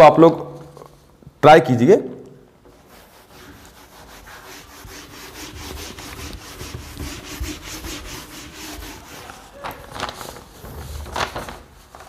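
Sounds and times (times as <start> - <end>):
duster rubbing whiteboard: 2.7 - 9.6.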